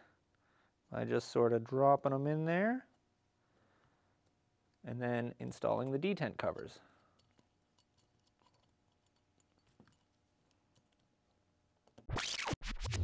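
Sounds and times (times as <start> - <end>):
small parts clicking into place: 5.6 - 12.1.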